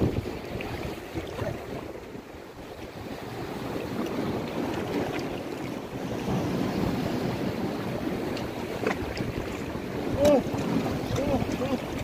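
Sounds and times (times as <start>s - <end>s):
water sloshing between concrete: 0.0s - 2.2s, 3.8s - 5.9s, 8.3s - 12.0s
wind on microphone: 0.0s - 12.0s.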